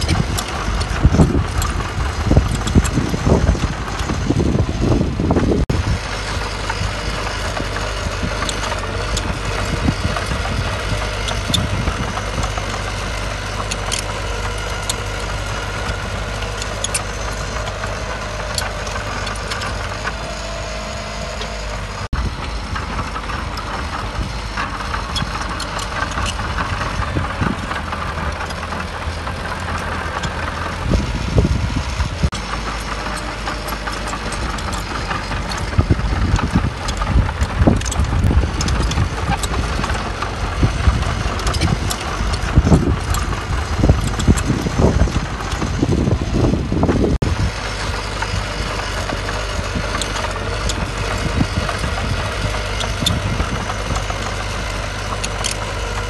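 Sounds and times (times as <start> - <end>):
diesel machinery running: 0.0 - 56.0.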